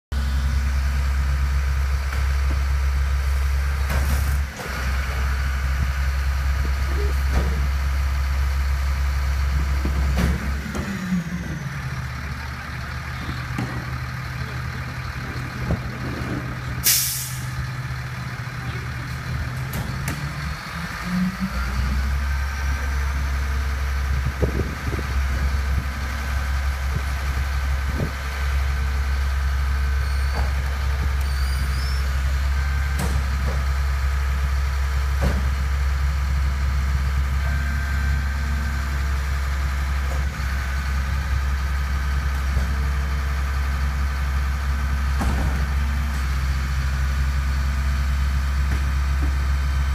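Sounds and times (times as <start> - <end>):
garbage truck engine drone: 0.1 - 49.9
air hiss: 16.8 - 17.5.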